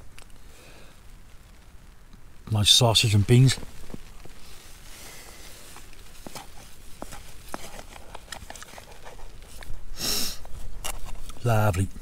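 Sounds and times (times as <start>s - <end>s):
light rustling: 3.2s - 11.9s.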